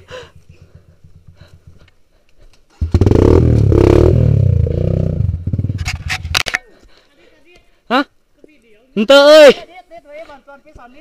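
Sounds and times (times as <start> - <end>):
motorcycle engine revving: 0.4 - 1.9, 2.8 - 6.4.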